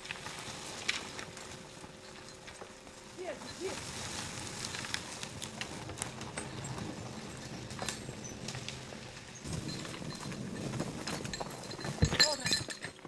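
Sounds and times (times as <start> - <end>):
horse hooves thudding: 0.0 - 13.0
twigs cracking underfoot: 3.4 - 9.3.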